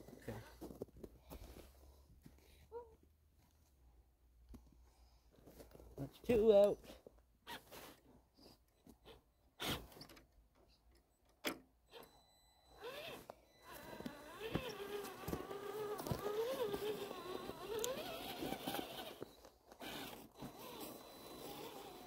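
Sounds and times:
rc car electric motor whine: 0:12.0 - 0:22.0
faint crunches: 0:13.2 - 0:21.9.

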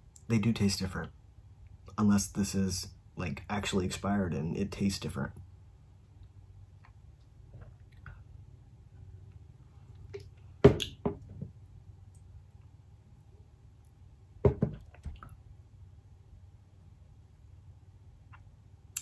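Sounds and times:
low steady hum: 0:00.0 - 0:19.0
plastic cup knocking on desk: 0:14.4 - 0:14.8.

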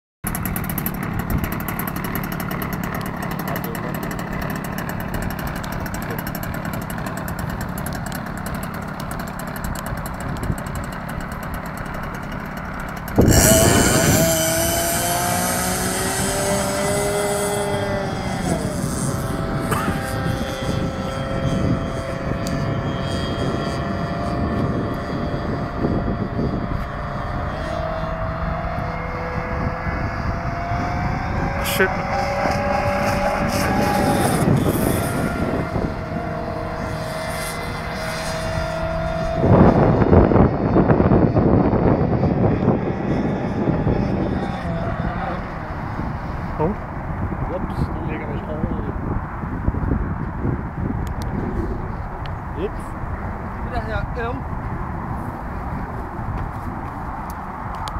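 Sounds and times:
small boat engine idling: 0:00.3 - 0:14.3
model powerboat motor whine: 0:00.3 - 0:47.4.

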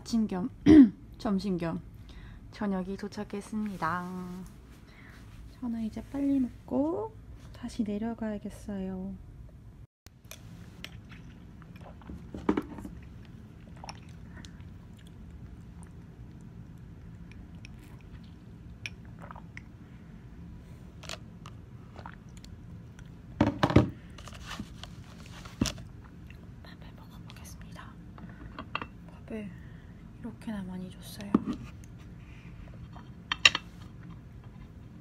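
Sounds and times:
low room hum: 0:00.0 - 0:35.0.

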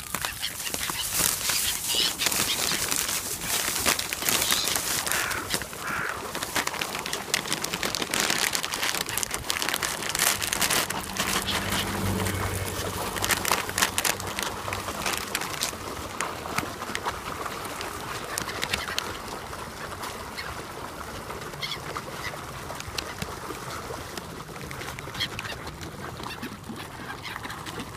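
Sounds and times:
plastic bag crinkling: 0:00.0 - 0:19.0
fish splashing at the surface: 0:00.0 - 0:27.9
gulls calling: 0:00.1 - 0:06.8, 0:08.7 - 0:16.4
wings flapping: 0:00.1 - 0:20.6.

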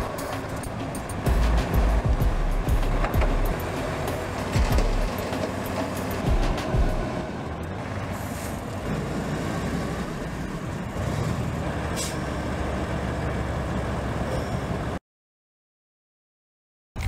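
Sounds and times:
diesel truck engines rumbling: 0:00.0 - 0:15.0
air brake hiss: 0:12.0 - 0:12.3.

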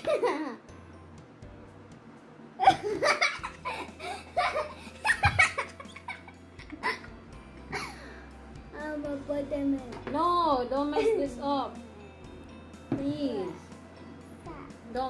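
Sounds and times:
boy laughing: 0:00.0 - 0:00.6, 0:02.6 - 0:08.0
woman laughing: 0:02.6 - 0:08.0, 0:10.9 - 0:11.4.

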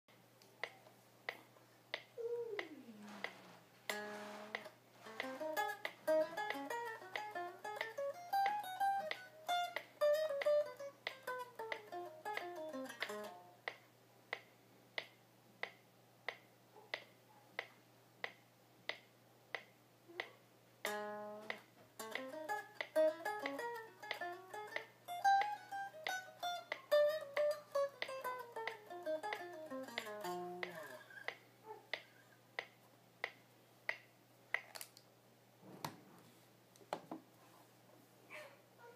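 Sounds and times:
metronome clicks: 0:00.6 - 0:16.4, 0:17.0 - 0:34.9
electric guitar jazz lick: 0:02.2 - 0:13.5, 0:20.1 - 0:31.4.

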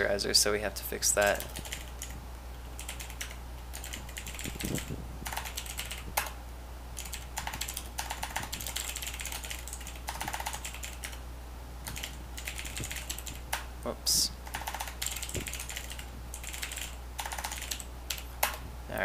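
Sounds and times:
low steady hum: 0:00.0 - 0:19.0
computer keyboard typing: 0:01.3 - 0:02.2, 0:02.8 - 0:06.3, 0:07.0 - 0:11.2, 0:11.8 - 0:13.7, 0:14.4 - 0:18.6.

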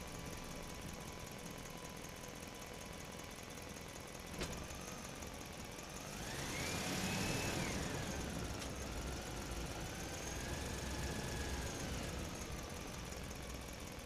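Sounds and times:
engine revving: 0:06.0 - 0:12.5.

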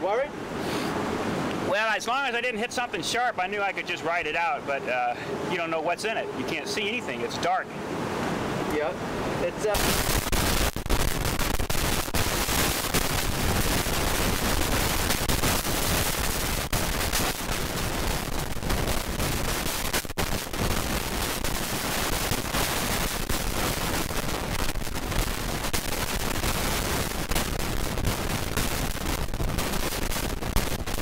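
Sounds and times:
surf washing: 0:00.0 - 0:31.0
wind blasting the microphone: 0:07.9 - 0:31.0.

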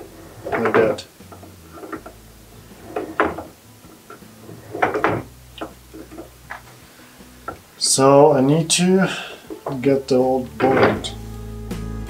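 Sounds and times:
metal clunks and scrapes: 0:00.0 - 0:07.7, 0:10.6 - 0:11.2
metal knocks and clicks: 0:02.8 - 0:06.7.

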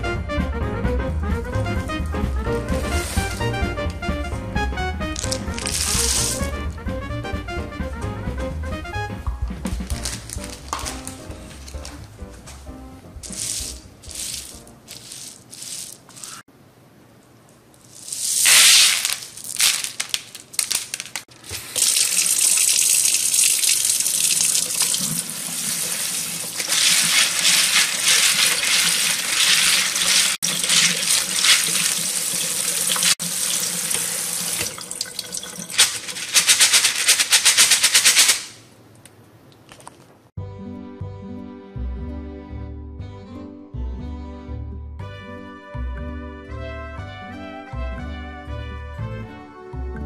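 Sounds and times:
hand stirring beans: 0:02.5 - 0:04.0, 0:05.2 - 0:06.6, 0:09.7 - 0:12.6, 0:13.2 - 0:16.5, 0:17.8 - 0:33.2, 0:35.6 - 0:38.6
tap water running into colander: 0:02.7 - 0:04.0, 0:21.4 - 0:37.1.

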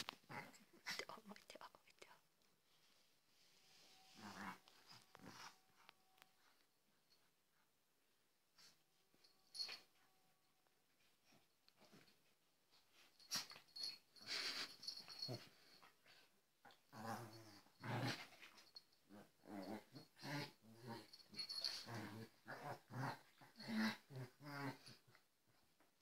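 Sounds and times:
dogs growling: 0:16.7 - 0:18.5, 0:19.1 - 0:25.2.

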